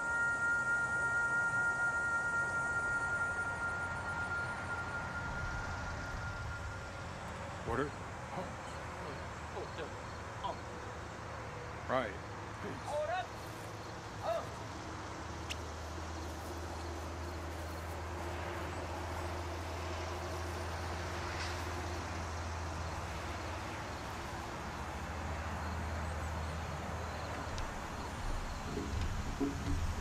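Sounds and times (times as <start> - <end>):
steady low hum: 0.0 - 12.8
faint outdoor background noise: 0.0 - 30.0.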